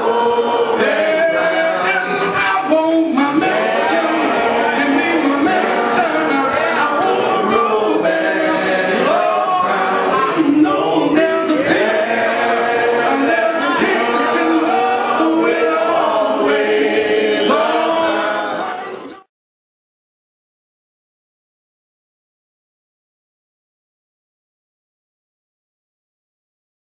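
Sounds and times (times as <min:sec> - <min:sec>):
gospel singing: 0:00.0 - 0:19.3.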